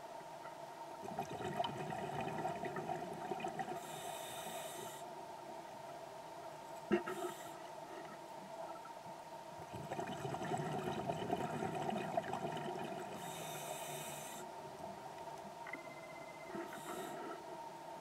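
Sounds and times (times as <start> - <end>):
faint steady hum: 0.0 - 18.0
exhaled air bubbles underwater: 1.0 - 3.8, 9.6 - 13.3
regulator hiss: 3.8 - 5.0, 13.2 - 14.5, 16.4 - 17.4.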